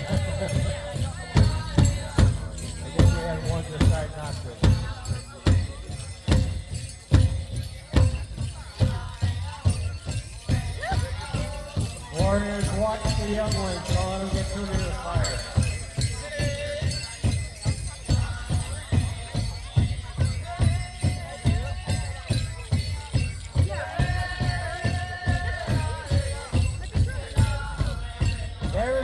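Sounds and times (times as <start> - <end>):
group of singers: 0.0 - 7.0, 8.3 - 29.0
steady hand drumbeat: 0.0 - 29.0.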